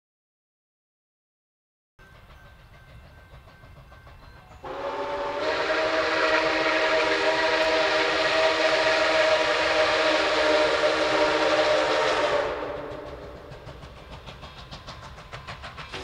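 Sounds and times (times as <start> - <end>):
steam locomotive whistle blast: 4.6 - 13.6.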